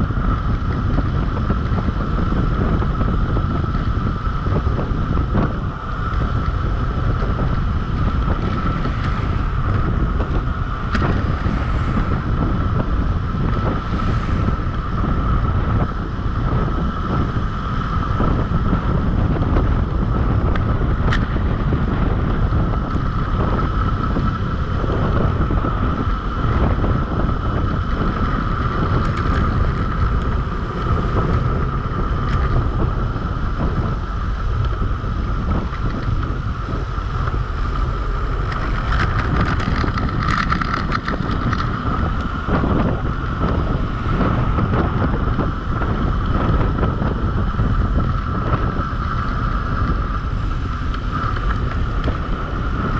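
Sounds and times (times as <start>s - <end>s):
high-pitched whine: 0.0s - 52.9s
wind buffeting microphone: 0.0s - 52.9s.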